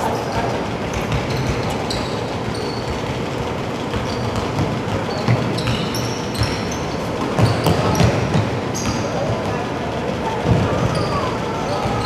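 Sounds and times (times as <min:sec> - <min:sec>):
sneakers squeaking on hardwood: 0:00.2 - 0:09.5, 0:10.4 - 0:12.0
basketball bouncing: 0:00.9 - 0:09.5, 0:10.4 - 0:11.2.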